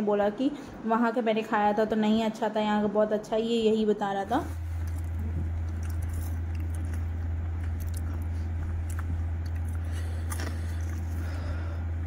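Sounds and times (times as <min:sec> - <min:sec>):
steady low hum: 0:00.0 - 0:12.0
person chewing crunchy fries: 0:04.5 - 0:11.9.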